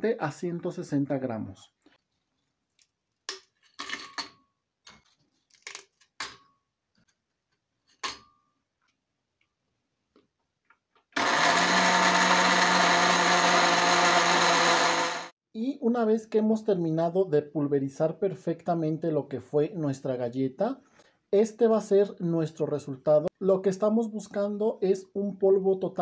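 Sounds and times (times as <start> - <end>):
blender motor grinding: 11.2 - 15.4.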